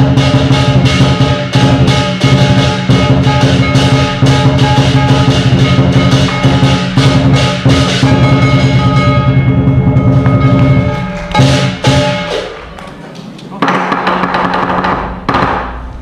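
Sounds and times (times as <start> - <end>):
gong ringing: 0.0 - 12.6
drum beat: 0.0 - 12.8, 13.6 - 15.6
cymbals clashing: 0.0 - 13.0.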